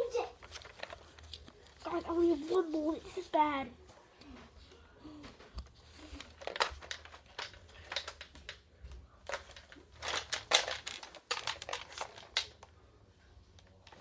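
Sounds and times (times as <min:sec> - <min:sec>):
handling clicks and rustles: 0:05.6 - 0:12.8.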